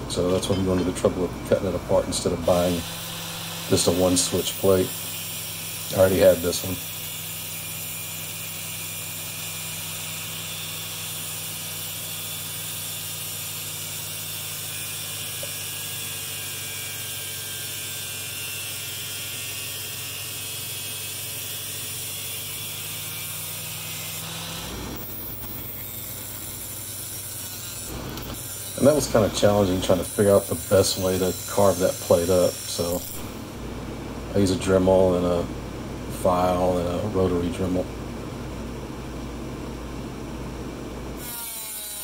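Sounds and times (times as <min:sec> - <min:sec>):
angle grinder cutting plastic: 0:02.2 - 0:33.6, 0:41.2 - 0:42.0
rough grinding noise: 0:21.0 - 0:33.6.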